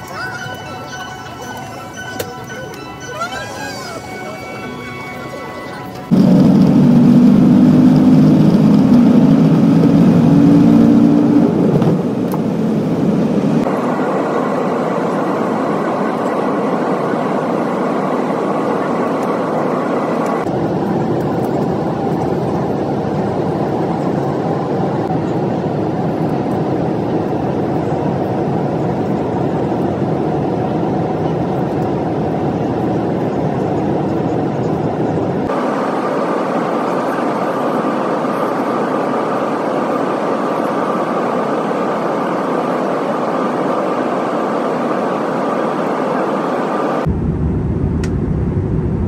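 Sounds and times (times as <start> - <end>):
jet engine noise: 0.0 - 49.0
rushing cabin drone: 0.0 - 49.0.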